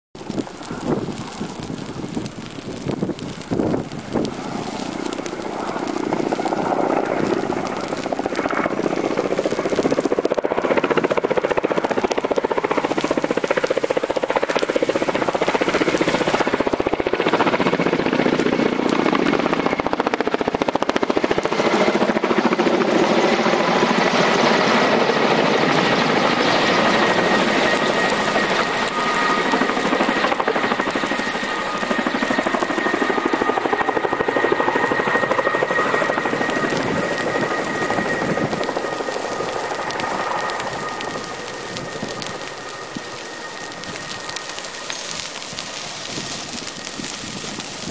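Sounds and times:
helicopter rotor chop: 0.2 - 47.9
high turbine whine: 0.2 - 47.9.

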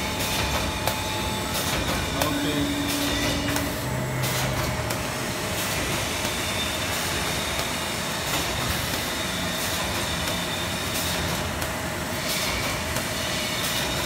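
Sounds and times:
machine mechanical clatter: 0.0 - 14.0.

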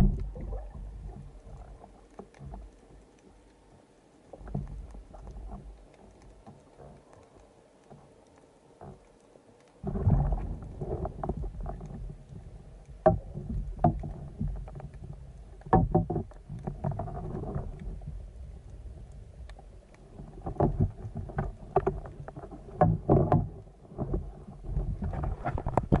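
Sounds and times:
muffled underwater rushing: 0.0 - 26.0
sharp knocks and clicks: 13.0 - 17.8, 20.4 - 24.2.

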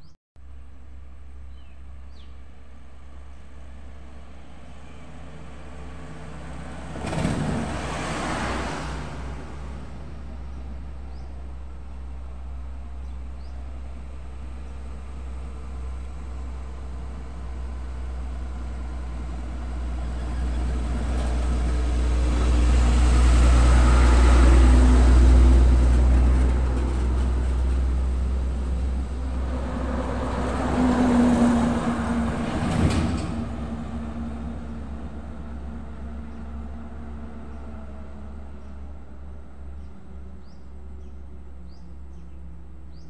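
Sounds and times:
tanker truck passing: 3.0 - 41.8
second vehicle passing: 4.2 - 11.2, 18.5 - 38.6.

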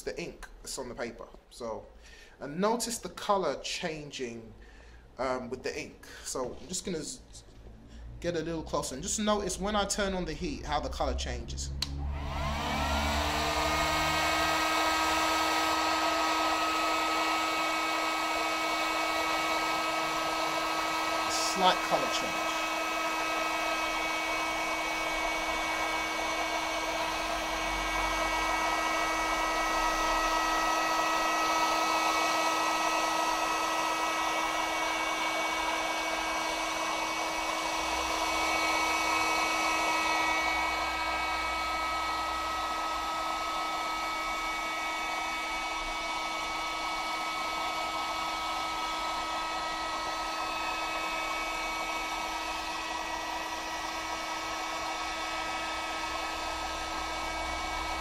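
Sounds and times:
heat gun fan whine: 11.0 - 58.0.

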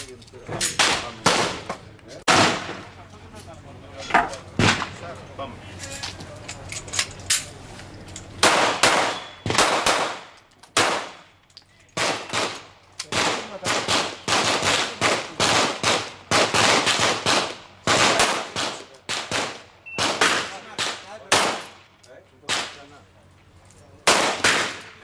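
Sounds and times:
pistol shots with echo: 2.3 - 2.9, 8.4 - 11.2, 12.0 - 21.8, 24.0 - 25.0.

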